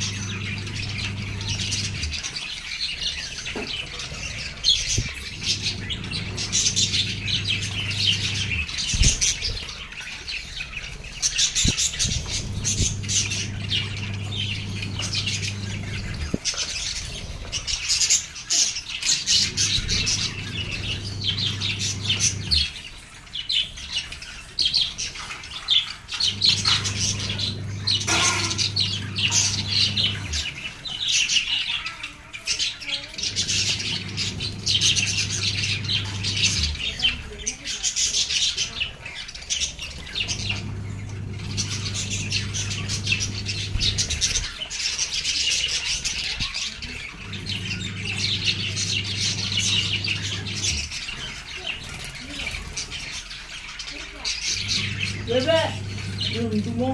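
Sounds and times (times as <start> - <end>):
budgerigars chattering and squawking: 0.0 - 56.9
low steady hum: 11.7 - 17.8, 26.2 - 30.6, 40.0 - 44.5, 54.5 - 56.9.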